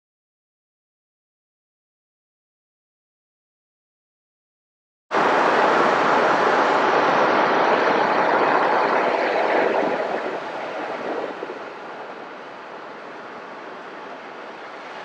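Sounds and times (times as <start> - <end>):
car road and wind noise: 5.2 - 15.0.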